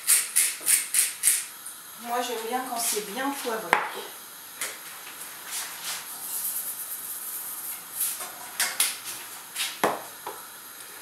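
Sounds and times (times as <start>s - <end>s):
scratchy kitchen scrapes and rustles: 5.3s - 9.8s.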